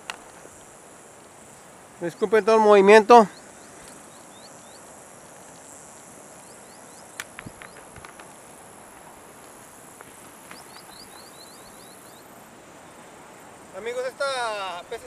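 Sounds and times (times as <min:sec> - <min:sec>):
high-pitched insect drone: 0:00.0 - 0:15.0
short rising insect chirps: 0:03.2 - 0:12.5
sharp clicks and knocks: 0:07.2 - 0:08.3.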